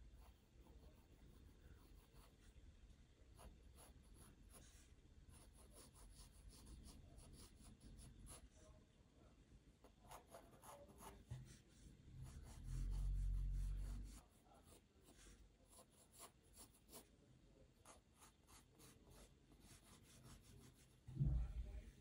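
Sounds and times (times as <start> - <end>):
pencil scratching on paper: 0.1 - 2.5, 3.4 - 8.5, 9.8 - 17.1, 17.8 - 21.0
low rumble: 21.1 - 22.0.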